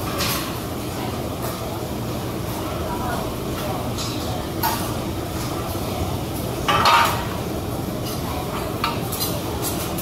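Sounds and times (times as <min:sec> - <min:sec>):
metal utensils clinking and scraping: 0:08.0 - 0:10.0.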